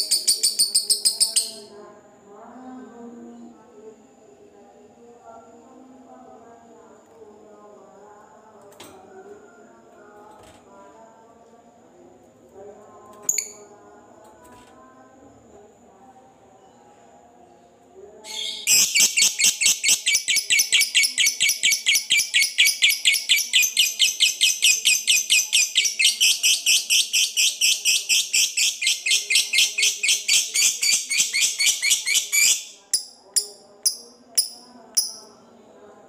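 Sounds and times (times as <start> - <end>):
lovebird chattering: 0.0 - 1.7, 18.3 - 35.3
sharp bird chirps: 0.0 - 1.7, 18.3 - 32.8.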